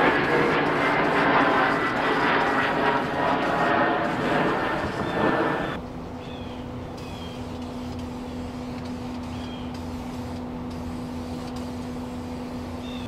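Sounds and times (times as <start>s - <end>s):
low rumble: 0.0s - 5.8s
engine-like hum: 0.0s - 13.0s.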